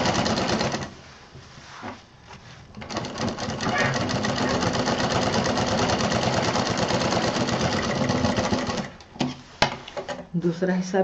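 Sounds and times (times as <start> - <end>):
sewing machine running: 0.0 - 0.9, 2.8 - 9.0.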